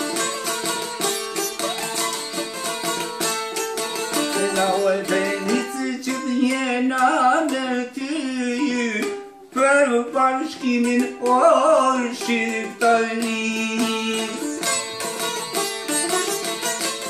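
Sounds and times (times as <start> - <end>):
plucked lute folk melody: 0.0 - 17.0
man singing: 4.2 - 15.0.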